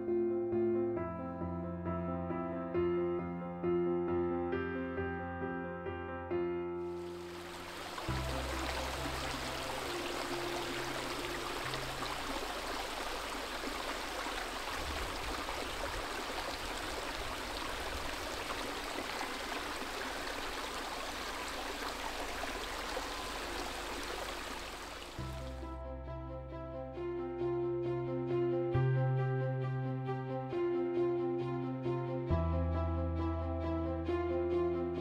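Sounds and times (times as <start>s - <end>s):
water rushing over rocks: 7.0s - 25.5s.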